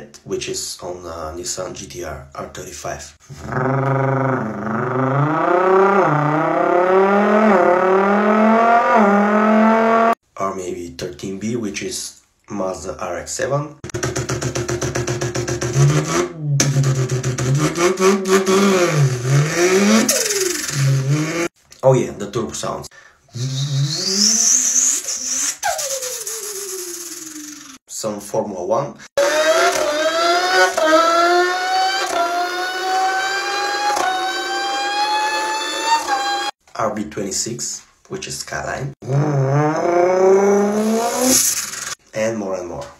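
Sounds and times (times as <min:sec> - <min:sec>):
man imitating rotary engine: 0:03.2 - 0:10.1, 0:17.9 - 0:21.5, 0:23.3 - 0:25.0, 0:39.0 - 0:42.0.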